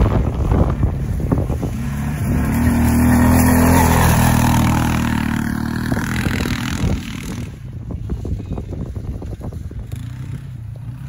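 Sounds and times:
quad engine running under throttle: 0.0s - 11.0s.

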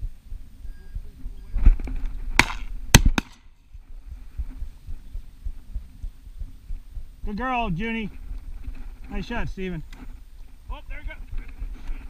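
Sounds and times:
shotgun shots: 2.4s - 3.5s.

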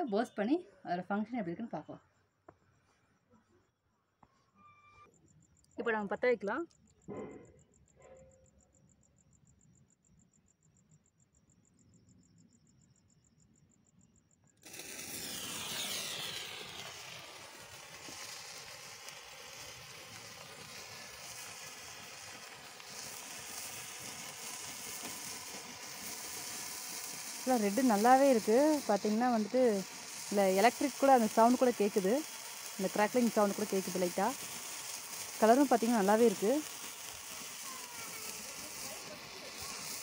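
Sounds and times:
sparkler fizzing crackle: 14.6s - 40.0s.

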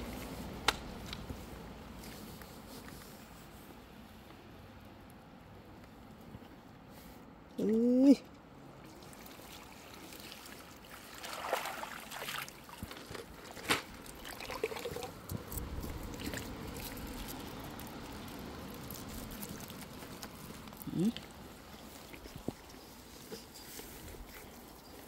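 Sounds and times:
stream running: 8.6s - 23.4s
water dripping through net mesh: 8.7s - 22.2s
water splashing: 8.8s - 22.4s.

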